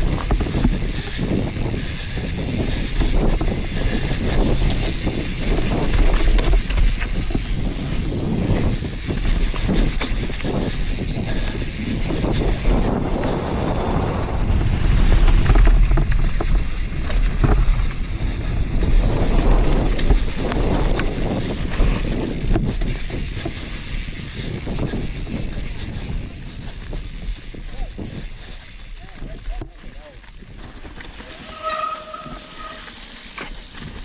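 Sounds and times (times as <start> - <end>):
wind buffeting microphone: 0.0 - 33.0
bike rattles and knocks: 0.0 - 34.0
tyres rolling over dirt: 11.9 - 25.3, 30.5 - 34.0.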